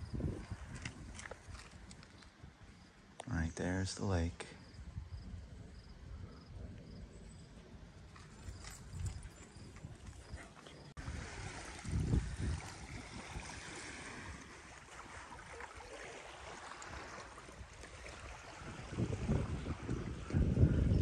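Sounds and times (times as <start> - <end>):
wind gusting on microphone: 0.0 - 21.0
waves washing on sandy beach: 11.0 - 21.0.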